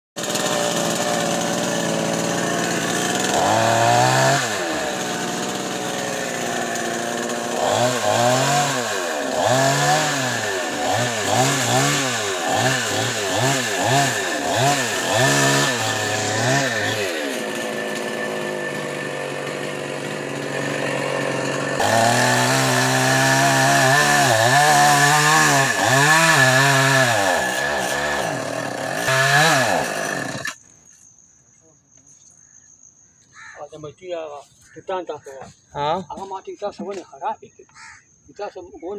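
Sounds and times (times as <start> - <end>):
chainsaw revving: 0.2 - 30.7.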